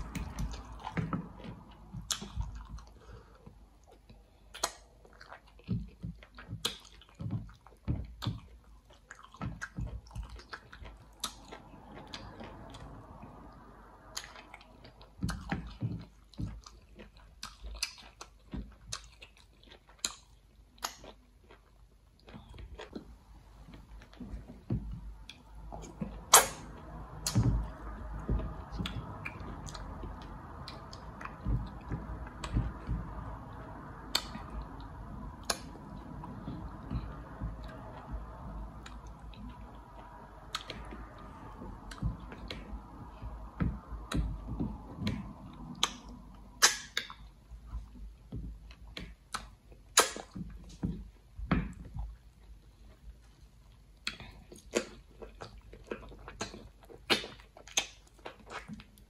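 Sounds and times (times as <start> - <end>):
low soft thumps: 0.0 - 3.8, 22.8 - 49.3
faint background hum: 0.0 - 59.0.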